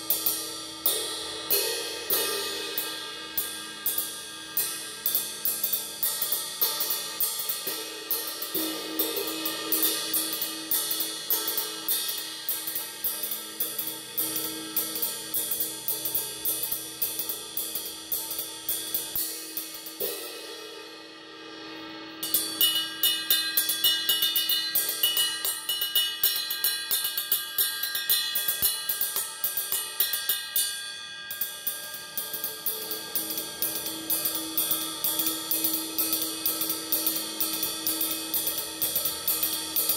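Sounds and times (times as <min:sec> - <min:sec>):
ride cymbal played with drumstick: 0:00.0 - 0:39.9.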